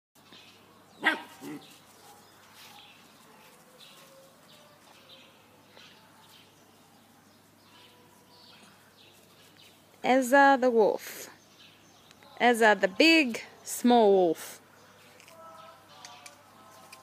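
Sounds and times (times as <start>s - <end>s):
puppy barking: 1.0s - 3.8s.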